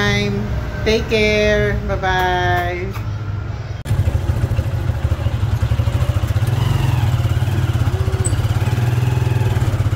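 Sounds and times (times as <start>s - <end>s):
motorcycle engine running: 3.9s - 9.9s.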